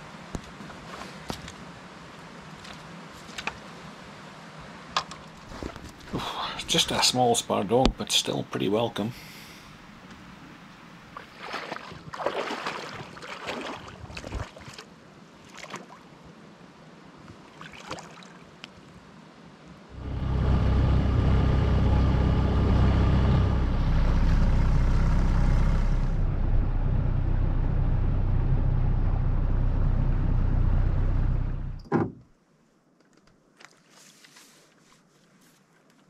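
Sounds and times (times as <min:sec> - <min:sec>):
boat motor droning: 0:19.9 - 0:31.8.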